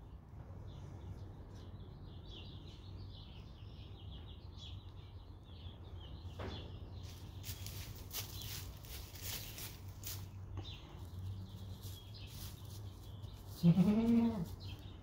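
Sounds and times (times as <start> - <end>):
small birds chirping: 0.0 - 15.0
rustling: 7.0 - 14.9.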